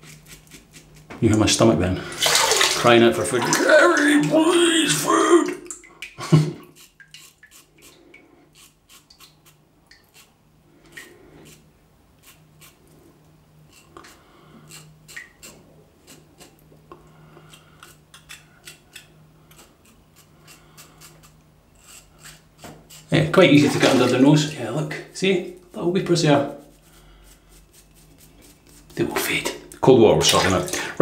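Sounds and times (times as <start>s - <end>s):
razor scraping stubble: 6.7s - 12.9s, 13.7s - 16.6s, 17.4s - 23.3s, 26.1s - 29.4s.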